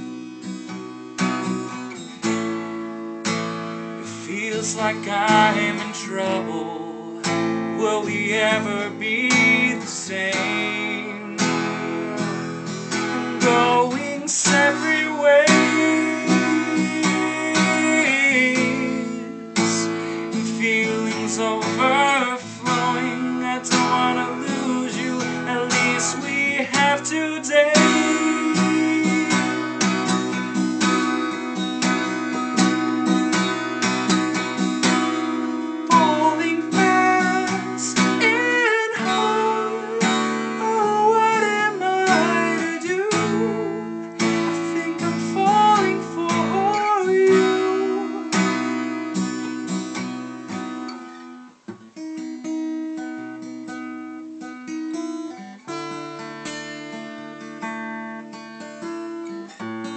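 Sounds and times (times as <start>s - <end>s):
acoustic guitar strumming: 0.0s - 59.9s
man singing: 4.0s - 30.5s, 34.8s - 48.7s.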